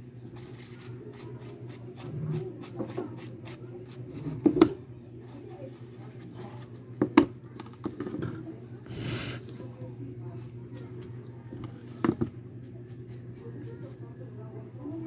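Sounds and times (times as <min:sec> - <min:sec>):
brush bristles scrubbing ear pad: 0:12.6 - 0:14.1.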